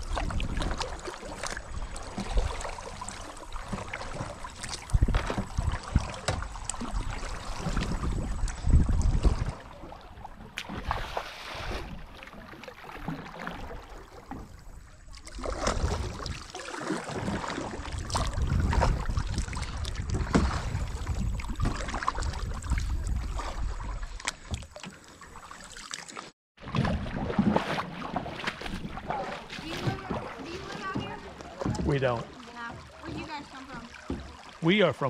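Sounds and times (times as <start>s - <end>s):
paddle splashing in water: 0.0s - 35.0s
wind rumble on microphone: 4.6s - 10.5s, 17.2s - 24.2s.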